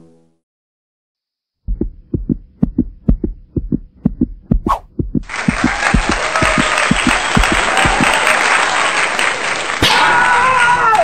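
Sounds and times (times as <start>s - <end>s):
heartbeat thumps: 1.7s - 8.2s
crowd cheering and applauding: 5.2s - 11.0s.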